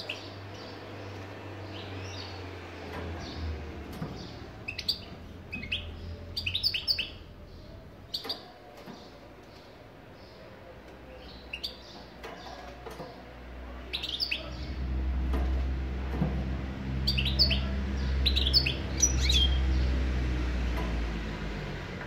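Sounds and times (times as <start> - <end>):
bird twittering chirps: 4.2 - 7.3, 17.0 - 19.9.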